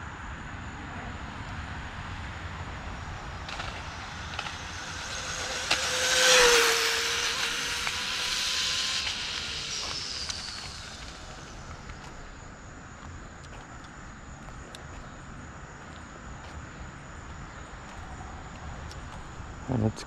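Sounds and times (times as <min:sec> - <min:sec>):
rc car speeding past: 0:00.6 - 0:12.8.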